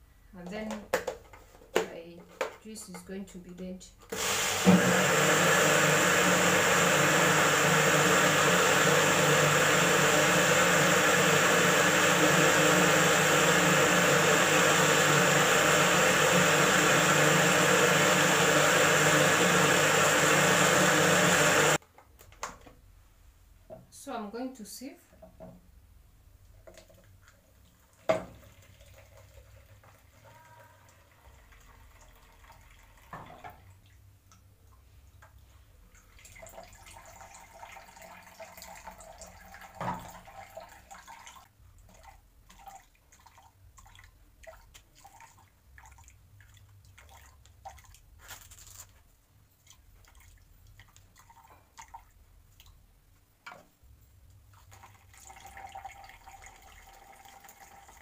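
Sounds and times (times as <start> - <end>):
juice pouring and dripping: 26.6 - 34.9, 35.9 - 48.2, 49.5 - 52.8, 54.5 - 58.0.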